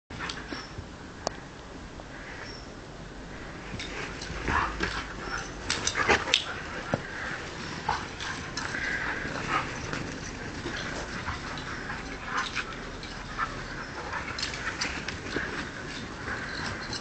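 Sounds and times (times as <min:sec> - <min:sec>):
dogs scuffling in snow: 0:03.4 - 0:17.0
dogs vocalizing: 0:03.8 - 0:17.0.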